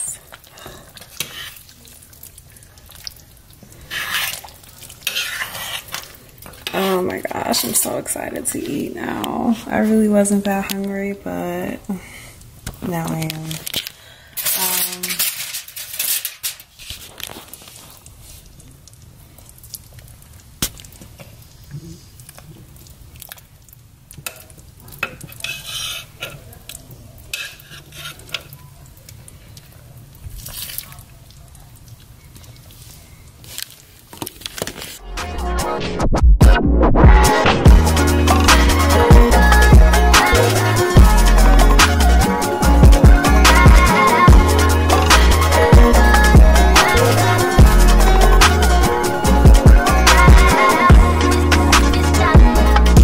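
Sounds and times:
liquid dripping and sloshing: 0:00.2 - 0:07.0, 0:16.9 - 0:34.8
wet stirring of stew: 0:00.2 - 0:08.4, 0:14.8 - 0:35.0
metal spoon scraping pot: 0:03.9 - 0:07.1, 0:25.0 - 0:26.5, 0:27.3 - 0:28.5.

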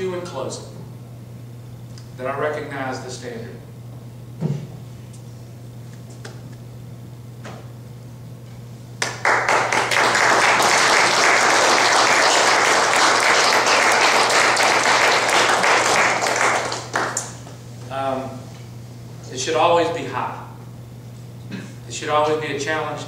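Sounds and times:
steady low hum: 0:00.0 - 0:23.0
audience applauding: 0:09.0 - 0:17.4.

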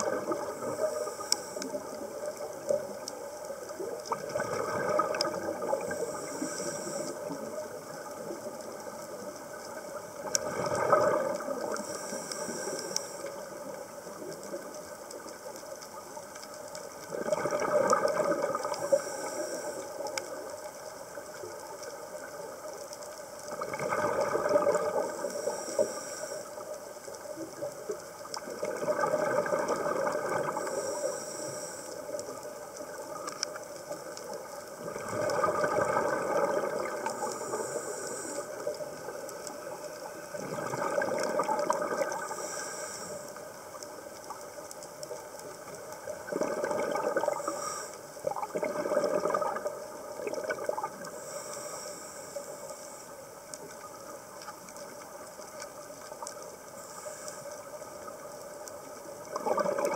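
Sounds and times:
exhaled bubbles underwater: 0:00.0 - 0:16.2, 0:16.8 - 0:22.5, 0:23.4 - 0:26.0, 0:27.3 - 0:42.5, 0:45.0 - 0:51.2, 0:58.0 - 0:59.9
regulator hiss: 0:00.2 - 0:04.0, 0:05.0 - 0:10.3, 0:11.5 - 0:15.4, 0:18.6 - 0:23.4, 0:24.9 - 0:28.0, 0:30.5 - 0:34.6, 0:36.7 - 0:40.4, 0:42.1 - 0:46.2, 0:47.2 - 0:48.4, 0:51.1 - 0:54.1, 0:56.7 - 0:59.1.

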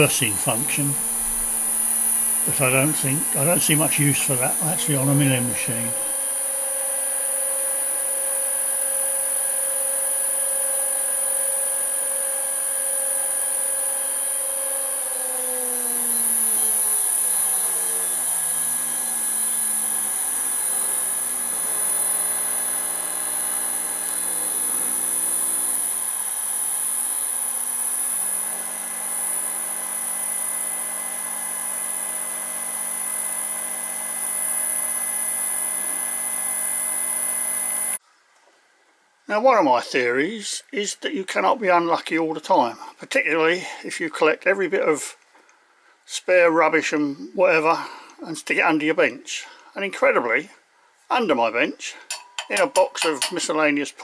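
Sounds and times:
high-pitched whine: 0:00.0 - 0:11.4
electric motor hum: 0:00.0 - 0:38.0.

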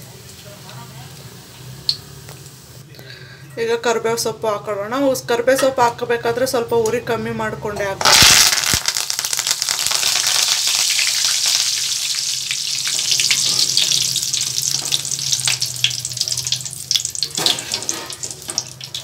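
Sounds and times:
leaves sizzling in hot oil: 0:08.0 - 0:19.0.

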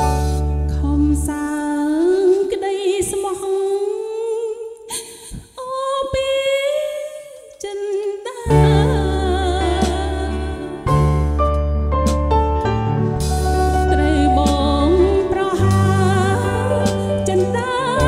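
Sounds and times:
bass and drums: 0:00.0 - 0:01.3, 0:08.5 - 0:18.0
live band: 0:00.0 - 0:01.4, 0:08.5 - 0:18.0
woman singing into microphone: 0:00.1 - 0:11.0, 0:13.7 - 0:18.0.

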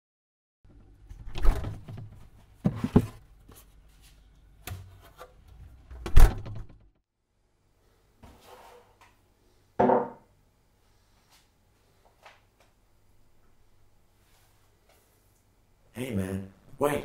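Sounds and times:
items handled on shelves: 0:00.7 - 0:06.2
refrigerator hum: 0:00.7 - 0:06.8
refrigerator door thuds: 0:06.1 - 0:06.8.

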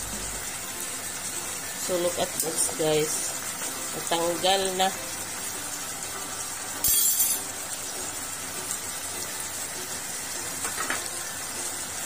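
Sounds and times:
pot simmering hiss: 0:00.0 - 0:12.0
metallic utensil clatter: 0:06.8 - 0:07.4.

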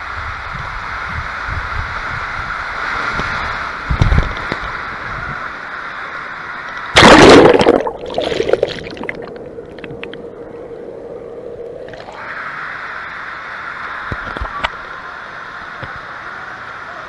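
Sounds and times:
water rushing: 0:02.6 - 0:10.2
loud splash: 0:06.9 - 0:09.2
bubble pops: 0:07.0 - 0:09.2
steady low hum: 0:07.0 - 0:14.0.

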